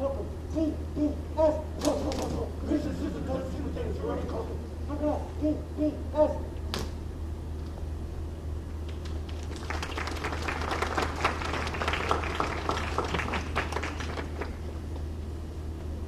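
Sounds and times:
crowd clapping: 8.8s - 14.8s.

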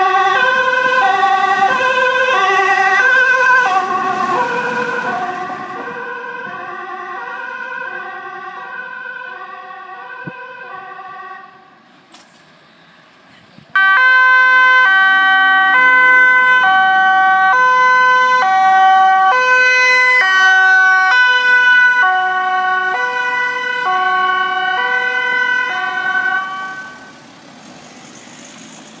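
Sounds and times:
ambulance two-tone siren: 0.0s - 11.8s, 13.7s - 27.2s.

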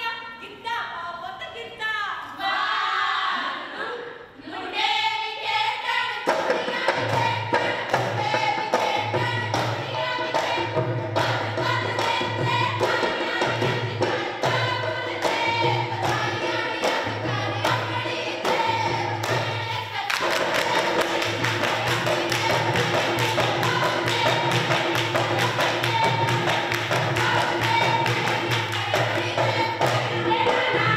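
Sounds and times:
women singing folk song: 2.2s - 30.9s
rhythmic handclapping: 6.3s - 30.9s.

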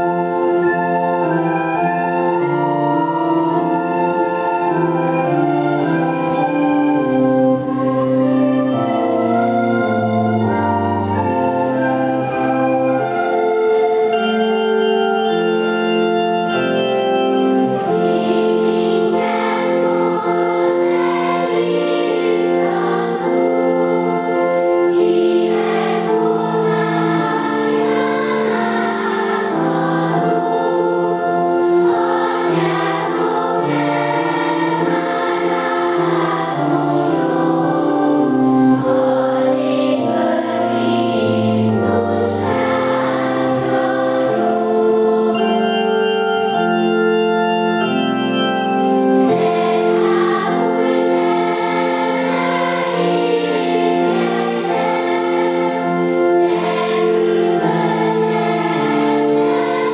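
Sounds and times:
children's choir singing: 0.0s - 59.9s
organ chords: 0.0s - 59.9s.

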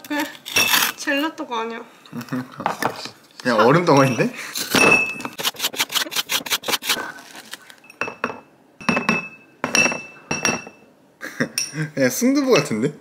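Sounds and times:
spoon scraping frozen dessert: 5.4s - 7.8s
spoon clinking against dish: 7.9s - 10.9s, 12.5s - 12.8s.

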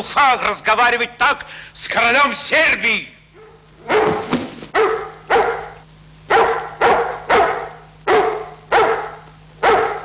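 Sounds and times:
dog barking: 3.4s - 10.0s.

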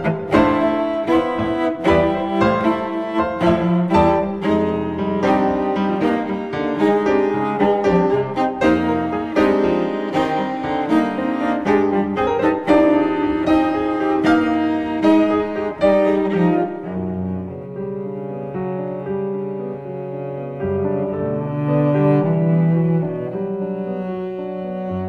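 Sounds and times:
cello melody: 0.0s - 25.0s
piano: 0.0s - 25.0s.

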